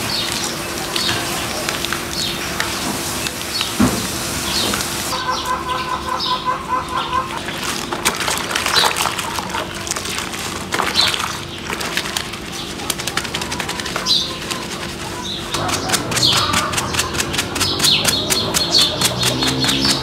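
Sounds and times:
soapy water splashing: 0:00.0 - 0:05.2, 0:06.6 - 0:20.0
birds calling: 0:00.0 - 0:20.0
wet stuffed toy squelching: 0:07.1 - 0:20.0
brush scrubbing: 0:07.3 - 0:20.0.

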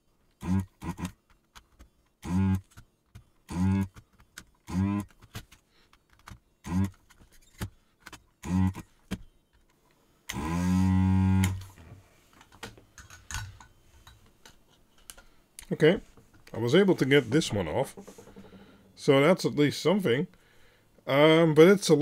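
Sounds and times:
desoldering pump buzzing: 0:00.4 - 0:01.2, 0:02.2 - 0:02.8, 0:03.4 - 0:04.0, 0:04.6 - 0:05.1, 0:06.6 - 0:07.0, 0:08.4 - 0:08.9, 0:10.3 - 0:11.8.

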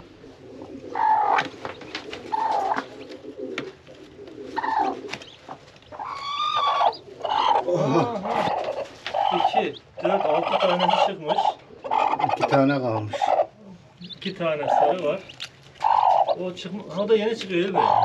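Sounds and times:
hen clucking and cooing: 0:00.0 - 0:18.0
straw rustling: 0:13.8 - 0:17.8.

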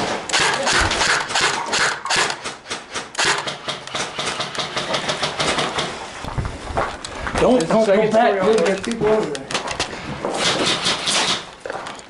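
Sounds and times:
airsoft gunfire clacking shots: 0:00.0 - 0:06.0.

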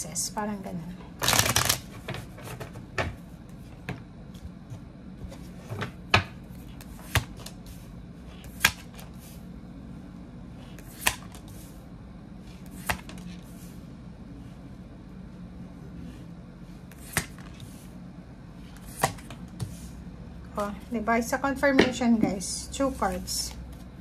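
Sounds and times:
tarot cards shuffling: 0:01.2 - 0:02.4.

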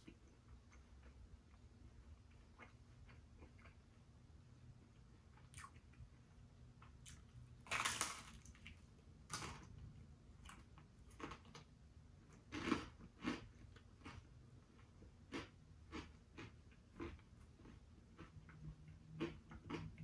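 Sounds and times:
person chewing pizza: 0:00.0 - 0:20.0.

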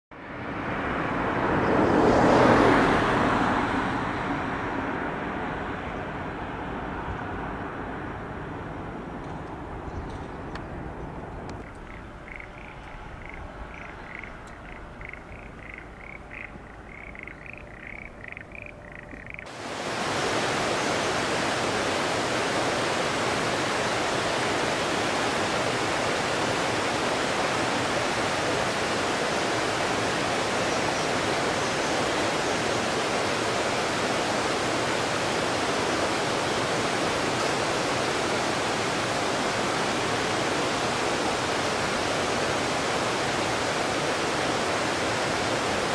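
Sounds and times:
rush of running water: 0:00.2 - 0:45.9
chirping animal calls: 0:11.6 - 0:19.5.

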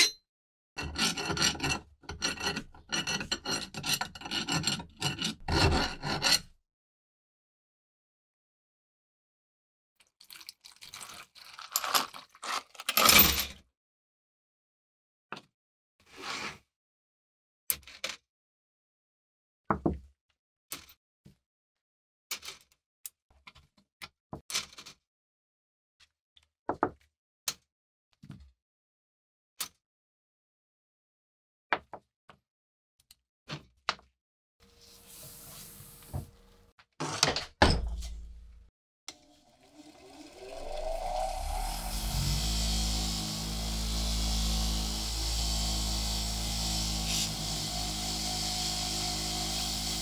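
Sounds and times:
steel pin grinding in metal: 0:00.8 - 0:06.5.

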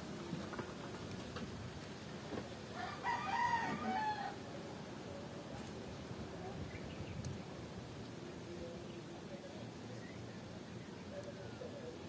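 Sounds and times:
rooster crowing: 0:02.7 - 0:04.5.

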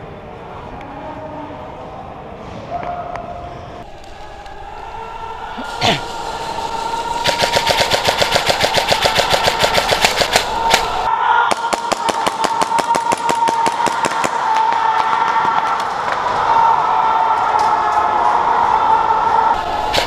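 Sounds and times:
airsoft guns firing full-auto: 0:07.2 - 0:14.4.

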